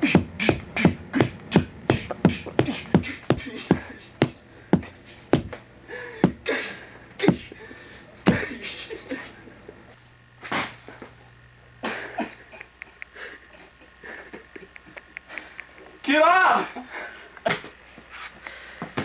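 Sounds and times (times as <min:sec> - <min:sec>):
boxing gloves hitting: 0:00.1 - 0:05.6.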